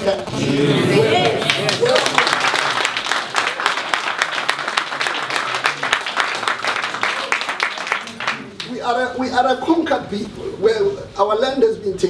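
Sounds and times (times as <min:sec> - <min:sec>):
people clapping: 0:00.9 - 0:08.8.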